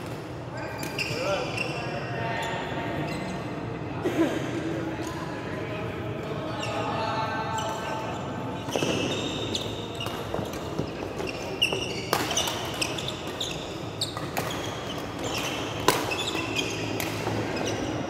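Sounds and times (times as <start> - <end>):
shoes squeaking on court floor: 0.6 - 3.6, 7.5 - 18.0
rackets hitting shuttlecock: 10.0 - 17.8.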